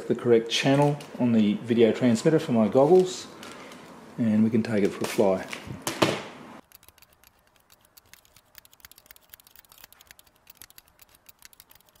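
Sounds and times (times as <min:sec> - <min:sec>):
rapid irregular clicking: 0:06.6 - 0:12.0.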